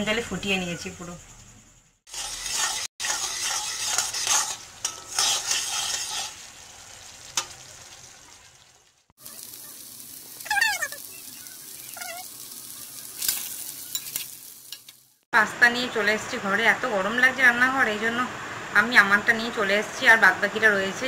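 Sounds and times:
metal spatula scraping a pan: 0:02.1 - 0:07.9, 0:13.1 - 0:15.0
onions sizzling in a pan: 0:02.1 - 0:15.3.

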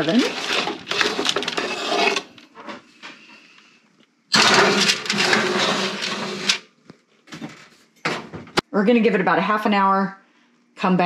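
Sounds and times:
metal pan scraping on oven rack: 0:00.0 - 0:02.4, 0:04.4 - 0:06.6.

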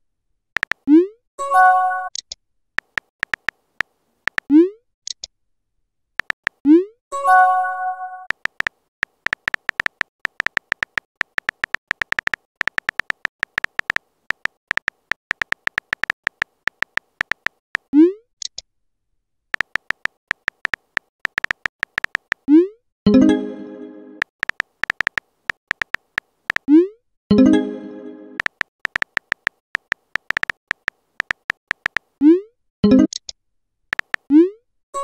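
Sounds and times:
phone keyboard typing clicks: 0:00.6 - 0:00.8, 0:02.2 - 0:04.5, 0:06.2 - 0:06.6, 0:08.3 - 0:18.6, 0:19.6 - 0:22.5, 0:24.2 - 0:26.7, 0:28.4 - 0:32.2, 0:33.9 - 0:34.3
rising pop message sent sound: 0:27.3 - 0:29.4.

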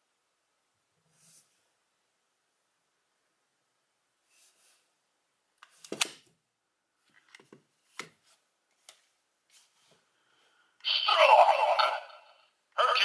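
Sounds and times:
loud electronic toy sound: 0:10.9 - 0:13.0.

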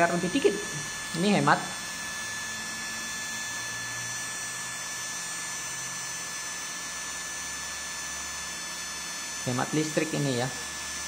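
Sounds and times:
electric motor whining: 0:00.0 - 0:11.0.

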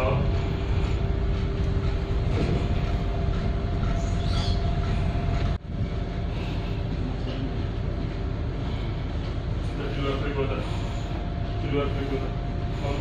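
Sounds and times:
ship engines rumbling and humming: 0:00.0 - 0:13.0.

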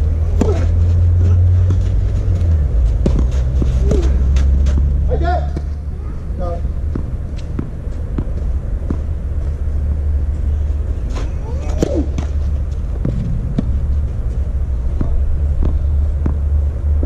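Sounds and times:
low rumble: 0:00.0 - 0:17.0
racket striking ball: 0:00.3 - 0:05.8, 0:11.1 - 0:13.8, 0:14.9 - 0:16.5
tennis ball bouncing on clay: 0:01.6 - 0:05.8, 0:06.8 - 0:09.2, 0:11.7 - 0:13.9, 0:14.8 - 0:16.6.

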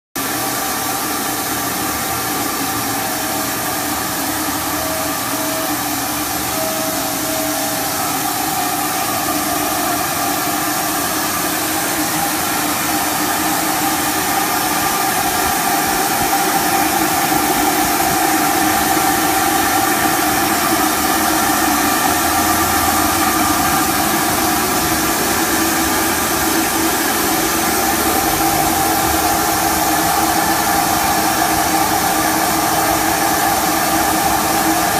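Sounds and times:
industrial machinery hissing and humming: 0:00.2 - 0:34.9
short tone blips: 0:04.5 - 0:08.3.

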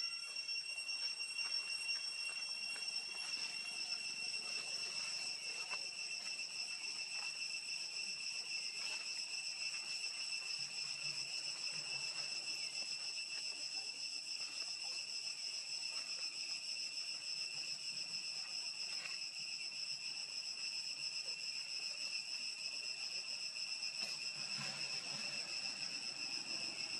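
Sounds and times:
high-pitched insect drone: 0:00.0 - 0:26.9
faint ticks and rustles: 0:18.8 - 0:19.2.

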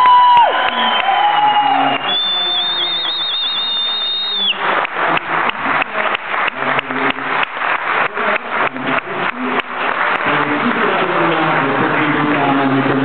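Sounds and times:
crowd clapping in unison: 0:00.0 - 0:13.0
high wavering whistle: 0:00.5 - 0:04.6.

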